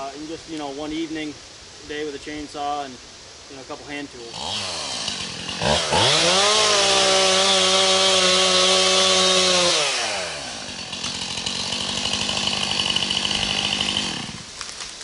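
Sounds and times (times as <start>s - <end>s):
chainsaw revving and cutting: 4.2s - 14.7s.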